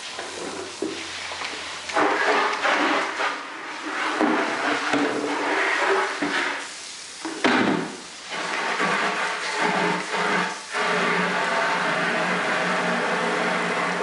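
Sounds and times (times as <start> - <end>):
hose water running into bucket: 0.0 - 14.0
bucket set down knock: 7.3 - 8.0
water splashing on pavement: 7.4 - 14.0.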